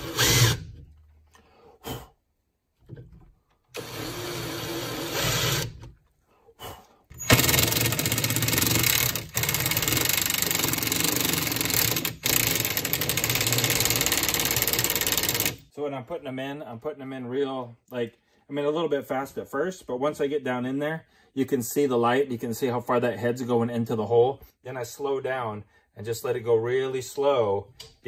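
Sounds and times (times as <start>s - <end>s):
cordless drill: 0.0s - 0.8s, 3.7s - 5.9s, 7.2s - 15.6s
impact driver hammering: 7.2s - 15.6s.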